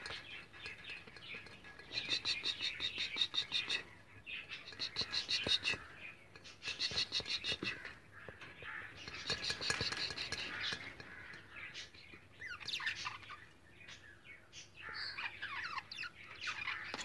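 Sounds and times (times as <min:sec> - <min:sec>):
budgerigars chirping: 0:00.1 - 0:08.0, 0:08.6 - 0:11.1.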